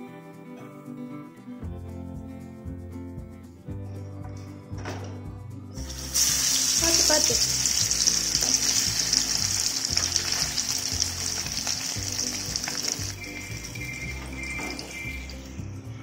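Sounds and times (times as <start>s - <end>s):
fish sizzling in hot oil: 5.8s - 15.6s.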